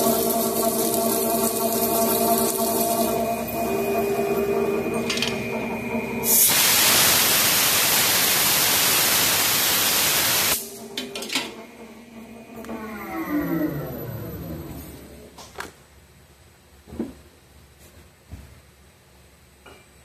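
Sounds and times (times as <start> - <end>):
lathe spindle humming: 0.0 - 6.3
loud even hiss: 6.2 - 10.8.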